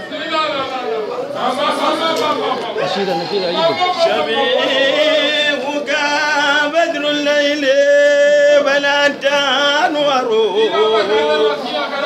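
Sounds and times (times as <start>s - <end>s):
men chanting a religious song: 0.0s - 12.0s.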